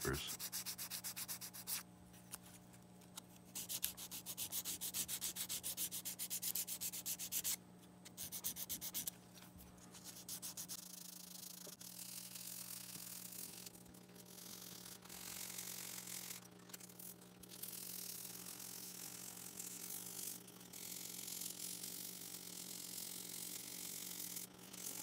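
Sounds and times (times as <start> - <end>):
sandpaper rubbing by hand: 0.2 - 1.8, 3.6 - 7.6, 8.2 - 9.1, 9.9 - 11.0.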